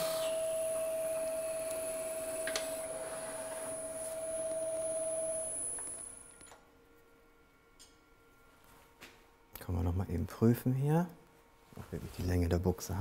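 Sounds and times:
lathe motor whining: 0.0 - 6.5.

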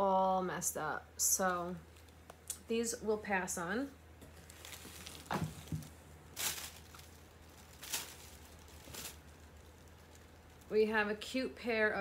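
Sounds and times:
paper wrapping rustling: 4.3 - 10.7.

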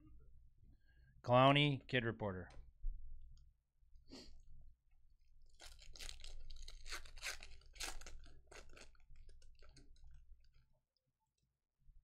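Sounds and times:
foil wrapper tearing and crinkling: 5.5 - 10.6.

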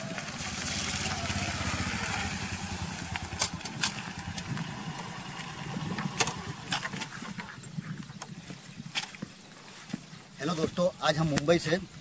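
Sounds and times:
motorcycle engine running: 0.0 - 7.9.

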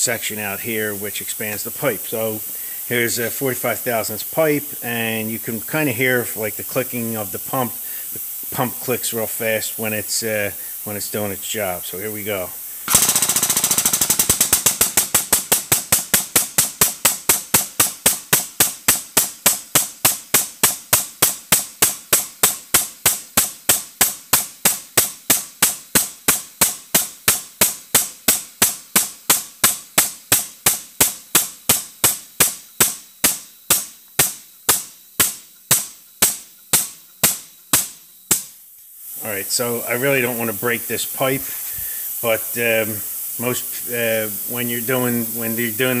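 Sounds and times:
hydraulic pump clicking rapidly: 12.8 - 27.6.

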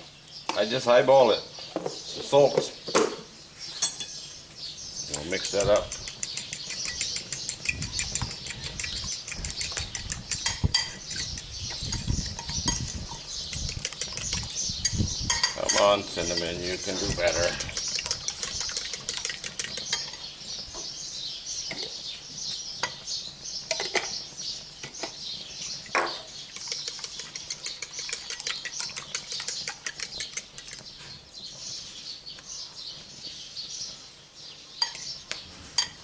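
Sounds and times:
fork clinking against bowl: 5.2 - 20.3, 26.0 - 30.8, 34.8 - 35.1.

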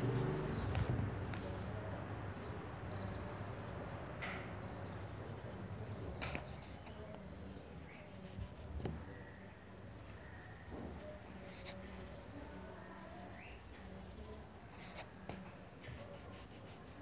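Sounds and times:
pencil scratching on paper: 4.5 - 9.1, 11.0 - 12.2, 13.2 - 17.0.

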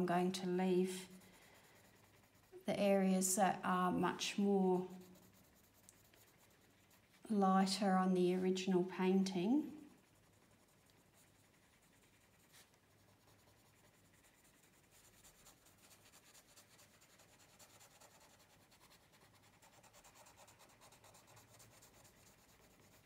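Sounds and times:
pencil scratching on paper: 0.0 - 23.0.

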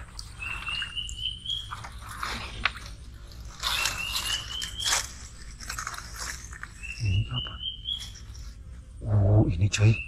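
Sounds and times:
grass scraping along a boat: 1.8 - 7.0.

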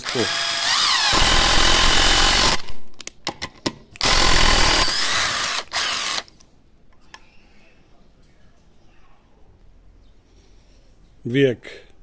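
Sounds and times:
impact driver driving screw: 0.1 - 2.7, 4.0 - 6.3.

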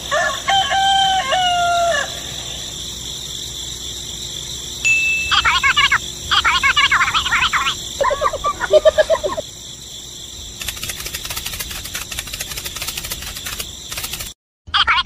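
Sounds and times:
cartoon voices chattering: 5.3 - 9.5
fast dense clicking: 10.6 - 14.4.

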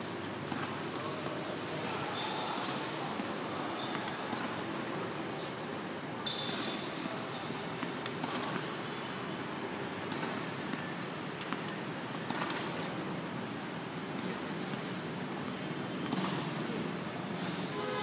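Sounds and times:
steady hall hum: 0.0 - 18.0
tennis racket striking balls: 2.6 - 4.9, 6.2 - 8.9, 9.7 - 13.0, 13.9 - 15.2, 15.9 - 16.8.

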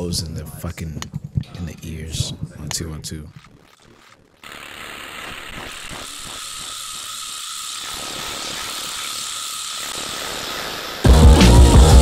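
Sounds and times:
faint regular pulse: 0.2 - 4.4.

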